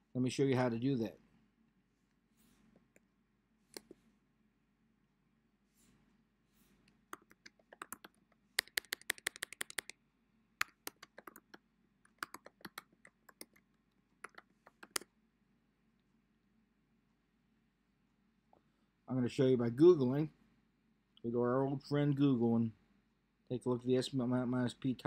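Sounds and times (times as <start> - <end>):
typing on a keyboard: 7.2 - 9.9, 10.6 - 13.6, 14.2 - 15.0.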